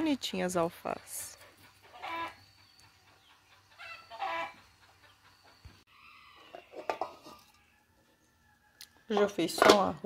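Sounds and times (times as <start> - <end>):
hen clucking: 0.9 - 7.2.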